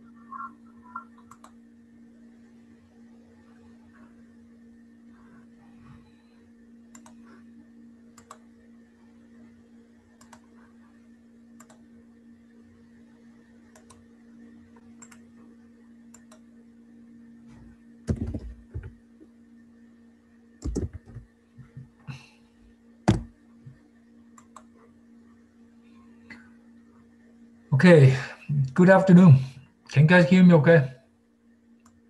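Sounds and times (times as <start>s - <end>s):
steady low hum: 0.0s - 32.0s
computer clicks: 1.0s - 1.6s, 6.9s - 7.2s, 8.2s - 8.4s, 10.2s - 10.5s, 11.6s - 11.8s, 13.7s - 14.0s, 15.0s - 15.3s, 16.1s - 16.4s, 24.4s - 24.7s
loud thumps: 18.1s - 19.0s, 23.1s - 23.3s.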